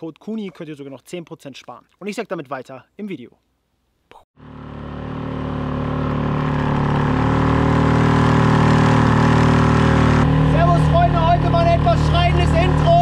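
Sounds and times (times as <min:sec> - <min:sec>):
boat engine droning: 0:04.4 - 0:13.0.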